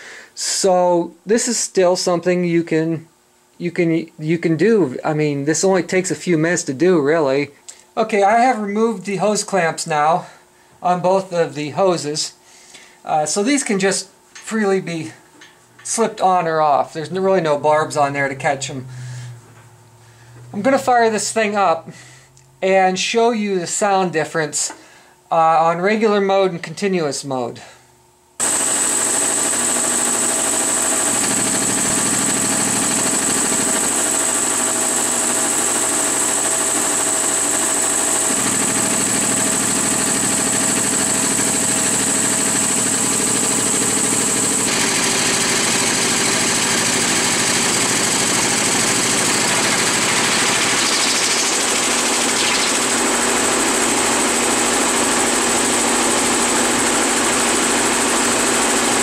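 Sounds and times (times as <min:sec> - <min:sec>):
electric air compressor running: 0:17.0 - 0:22.3, 0:28.4 - 0:59.0.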